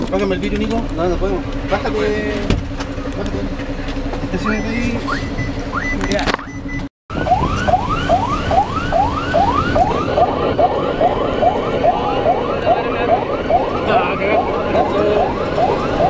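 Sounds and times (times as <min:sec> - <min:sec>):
engine and road noise: 0:00.0 - 0:16.0
fire engine siren yelping: 0:04.3 - 0:16.0.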